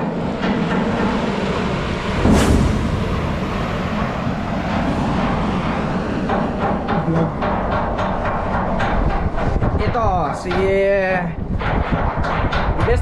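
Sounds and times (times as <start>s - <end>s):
low hum: 0.0s - 13.0s
sea rushing past bow: 1.6s - 6.1s.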